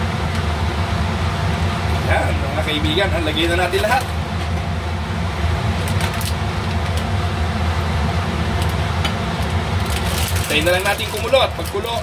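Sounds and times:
low mechanical hum: 0.0s - 12.0s
plastic bag rustling: 9.8s - 12.0s.

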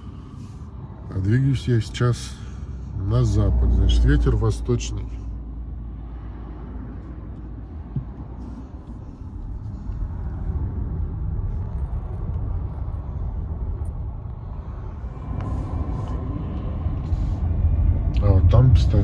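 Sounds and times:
low rumbling in car cabin: 0.0s - 19.0s.

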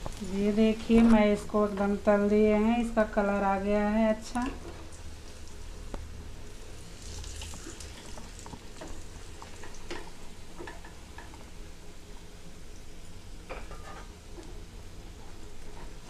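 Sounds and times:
food sizzling in oil: 4.2s - 11.6s.

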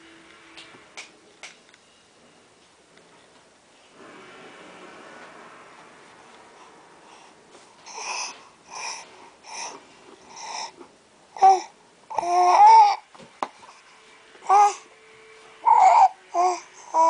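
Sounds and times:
baby babbling: 11.4s - 13.0s, 14.4s - 14.8s, 15.6s - 17.0s.

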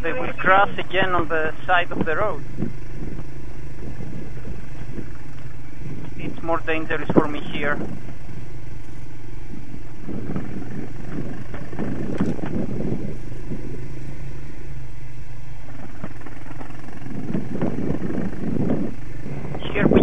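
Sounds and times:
motorcycle engine running: 0.0s - 20.0s
irregular crackling noise: 15.6s - 19.8s.

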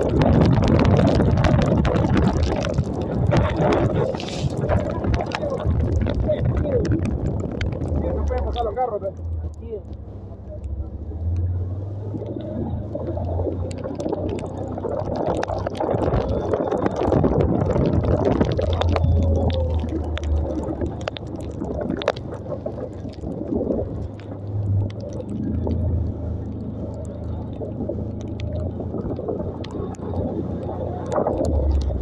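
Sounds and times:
motorcycle engine hum: 0.0s - 32.0s
wind on microphone: 0.0s - 32.0s.

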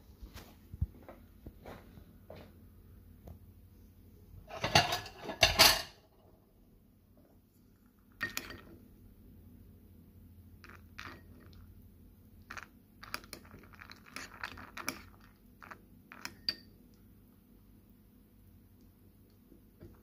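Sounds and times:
spoon clinking on ceramic bowl: 16.2s - 16.7s.

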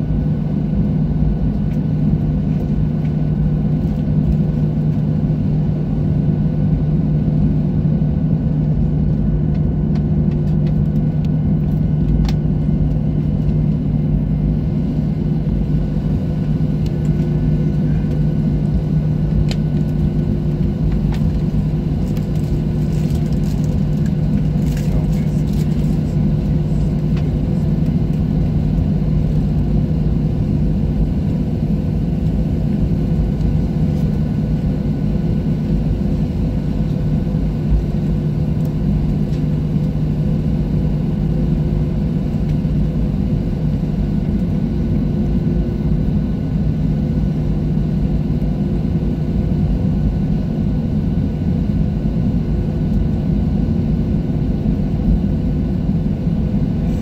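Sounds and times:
constant hums: 0.0s - 57.0s
jet engine drone in cabin: 0.0s - 57.0s.

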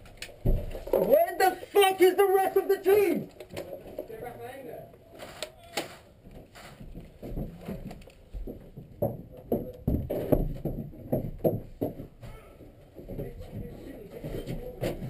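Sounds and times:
knocks and thuds: 0.4s - 1.2s, 6.3s - 15.0s.

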